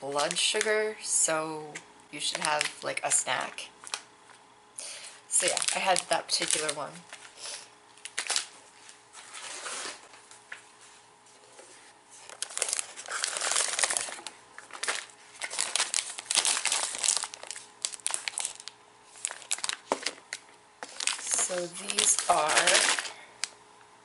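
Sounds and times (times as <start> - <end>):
plastic snack packet crinkling: 0.0 - 0.8, 2.2 - 4.4, 5.0 - 7.4, 8.0 - 10.0, 12.3 - 23.6.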